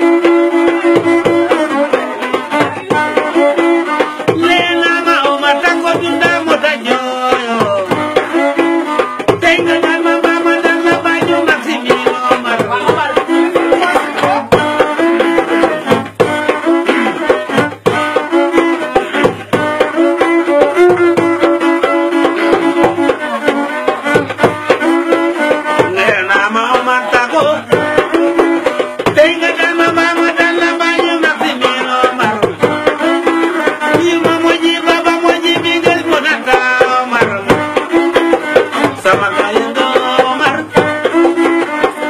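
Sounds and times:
one-string fiddle melody: 0.0 - 42.0.

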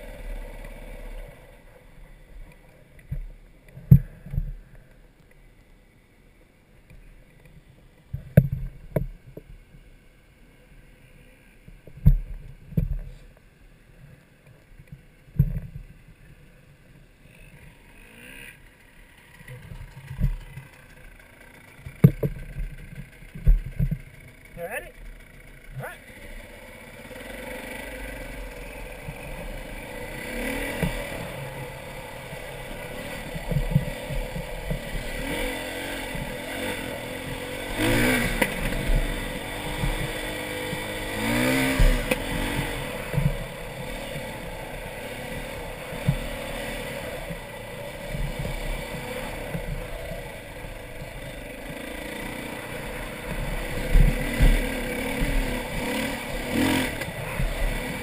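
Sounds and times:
dirt bike engine revving: 0.0 - 1.8, 17.3 - 58.0
bike knocks and rattles: 19.3 - 25.9, 32.7 - 58.0.

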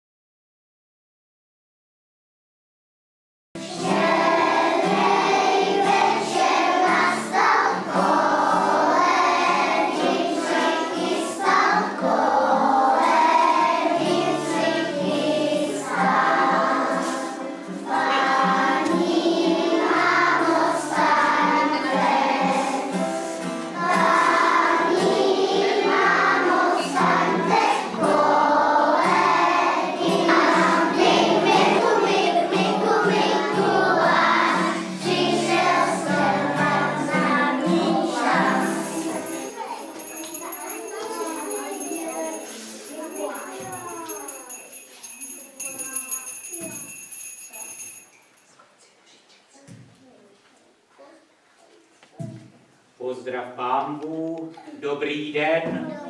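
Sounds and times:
children singing: 3.6 - 44.7
acoustic guitar: 3.6 - 45.1.

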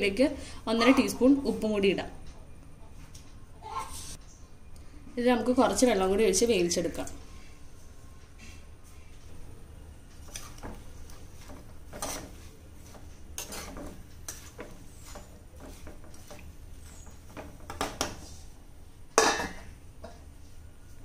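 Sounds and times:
spoon stirring and scraping pot: 10.2 - 18.5
metal lid clanging on pot: 19.2 - 20.2.

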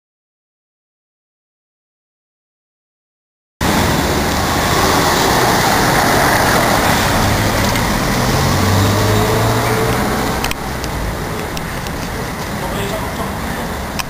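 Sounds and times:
street traffic noise: 3.6 - 14.0
vehicle engine running: 3.6 - 14.0.

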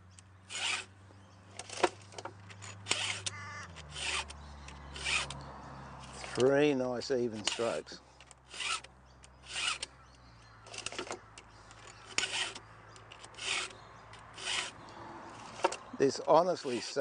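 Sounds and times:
file rasping on chainsaw chain: 0.5 - 0.9, 2.7 - 5.4, 6.0 - 6.5, 7.3 - 7.9, 8.5 - 9.9, 11.9 - 17.0.

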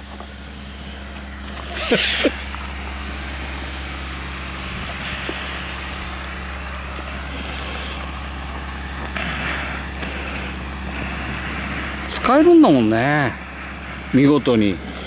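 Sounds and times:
low mechanical rumble: 0.0 - 15.0.

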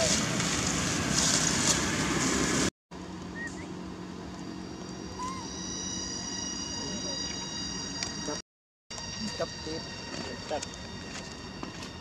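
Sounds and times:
dry leaves rustling: 0.0 - 2.7
faint high tones: 4.4 - 8.4
squeaky chirps: 5.0 - 8.3.

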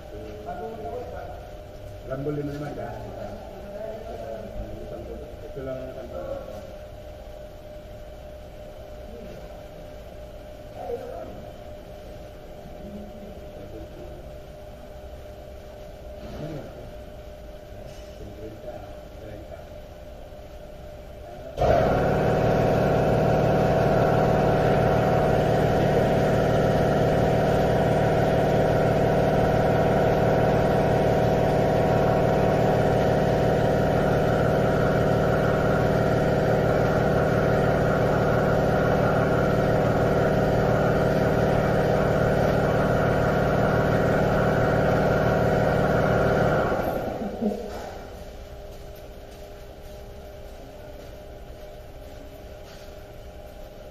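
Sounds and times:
machine humming drone: 21.0 - 48.6.

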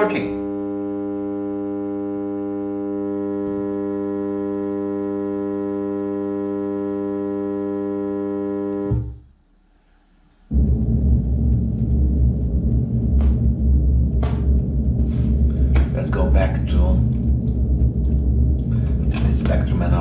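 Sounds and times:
bass-heavy rumbling signal: 0.0 - 9.3, 10.2 - 20.0
low-pitched test tone: 10.5 - 20.0.

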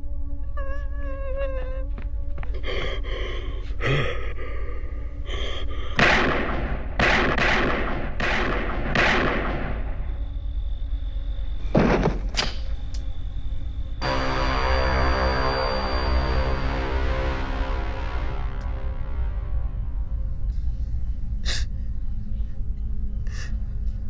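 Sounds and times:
handgun shots ringing out: 6.0 - 9.8.

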